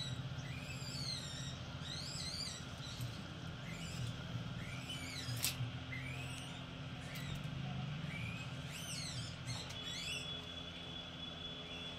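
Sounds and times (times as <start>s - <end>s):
steady low hum: 0.0s - 11.9s
sharp squeak: 8.0s - 11.9s.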